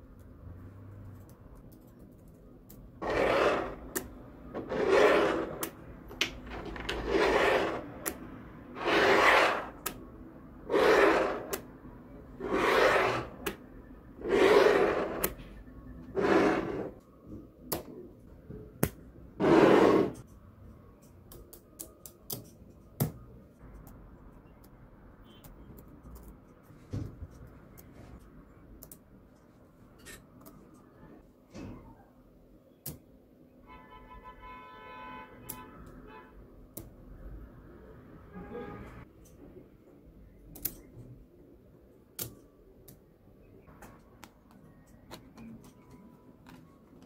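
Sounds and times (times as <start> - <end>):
magnetic balls rasping scrapes: 3.0 - 5.8, 6.4 - 10.0, 10.6 - 11.7, 12.4 - 13.6, 14.2 - 15.4, 16.1 - 17.0.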